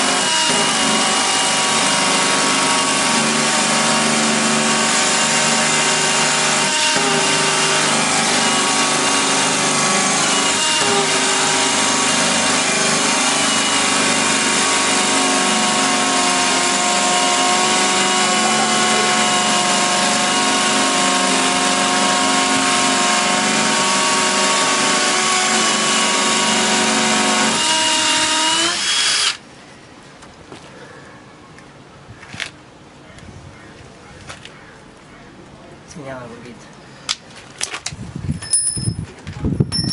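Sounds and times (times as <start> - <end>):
hammer drills drilling into concrete: 0.0 - 29.4.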